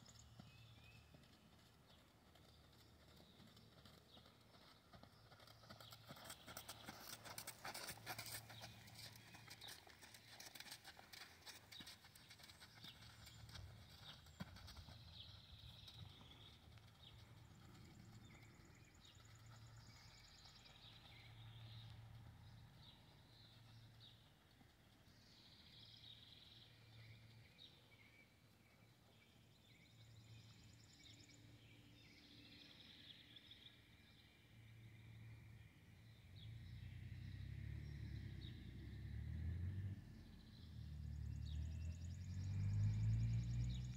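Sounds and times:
horse hoofbeats on sand: 0.2s - 20.1s.

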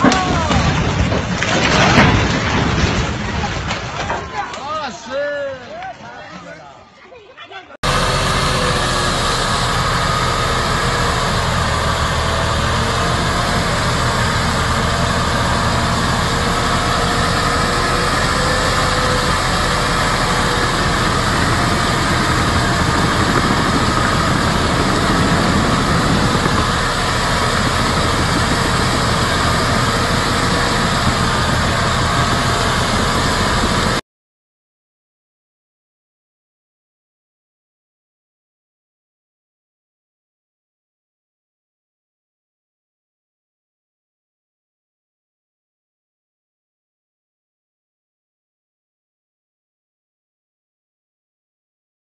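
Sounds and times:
diesel truck engine running: 7.8s - 34.0s.

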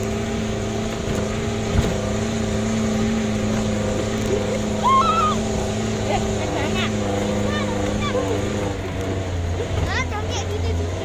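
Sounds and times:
jeep engine running: 0.0s - 11.0s
high rising cry: 4.5s - 5.8s.

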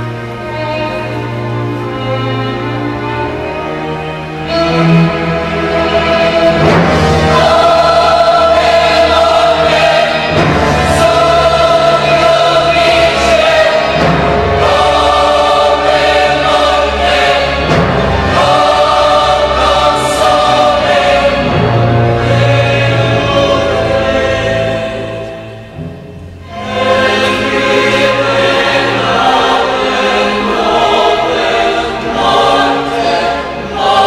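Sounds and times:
choir singing a requiem: 0.0s - 34.0s
orchestral accompaniment: 0.0s - 34.0s
heavy drum strokes: 6.2s - 24.4s.

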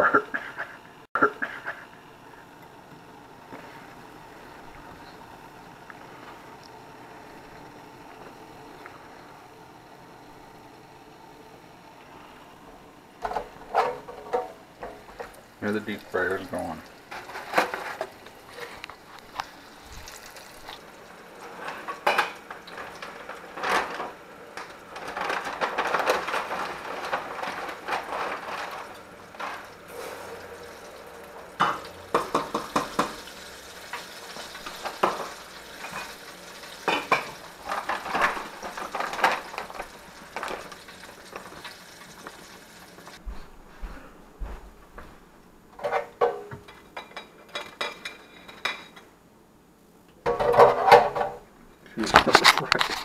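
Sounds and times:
oil sizzling in a deep fryer: 12.9s - 25.0s, 26.3s - 43.2s
dishes and utensils clattering: 13.2s - 16.4s, 17.1s - 18.8s, 21.4s - 30.5s, 31.6s - 33.3s, 33.9s - 42.3s, 45.8s - 49.1s, 50.2s - 51.4s
fryer basket knocks: 31.6s - 33.3s.

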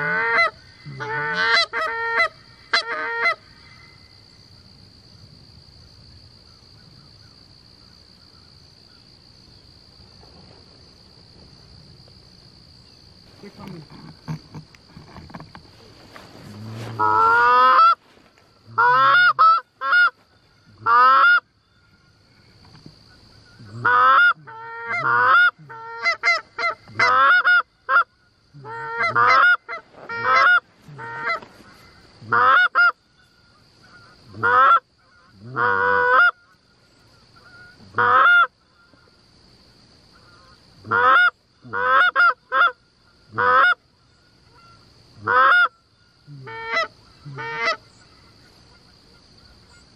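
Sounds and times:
goose honking and clucking: 0.0s - 3.4s, 13.4s - 20.2s, 20.8s - 21.4s, 23.1s - 33.0s, 33.8s - 36.5s, 37.2s - 38.5s, 40.2s - 43.8s, 44.5s - 49.3s.

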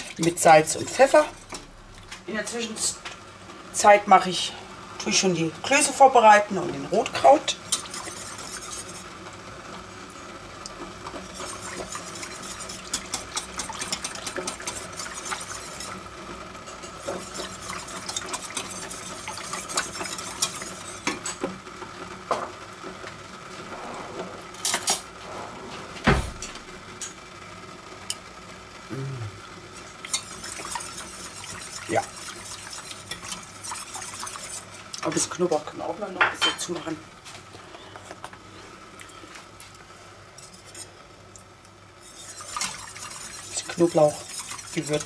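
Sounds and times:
whisk scraping metal pot: 0.0s - 1.6s, 6.9s - 9.2s, 11.0s - 21.4s, 29.8s - 35.4s, 40.4s - 40.9s, 42.0s - 45.0s.

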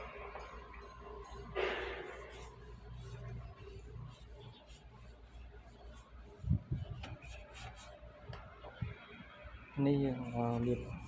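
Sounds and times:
cloth pad rubbing wood: 1.3s - 8.0s, 10.1s - 11.0s.

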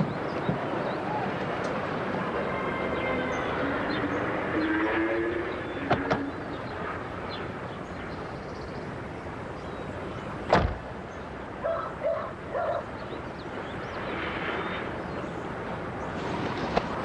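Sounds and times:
dog barking: 11.6s - 12.8s.

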